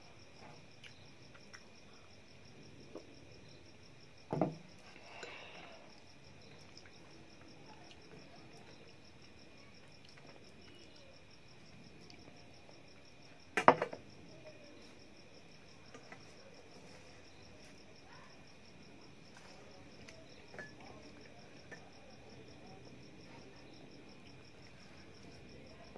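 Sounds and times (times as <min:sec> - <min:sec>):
crickets chirring: 0:00.0 - 0:25.9.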